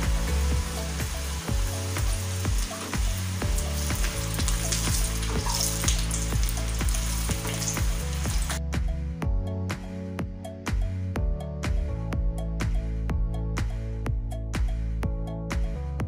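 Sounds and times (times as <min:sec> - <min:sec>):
background music with steady beat: 0:00.0 - 0:16.0
dough sizzling in hot oil: 0:00.1 - 0:08.6.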